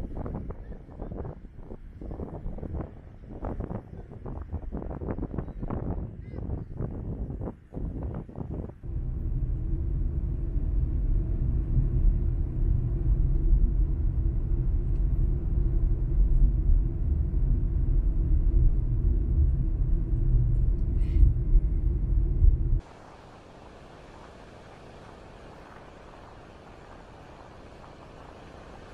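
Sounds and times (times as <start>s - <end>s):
car road and engine rumble: 8.7s - 28.9s.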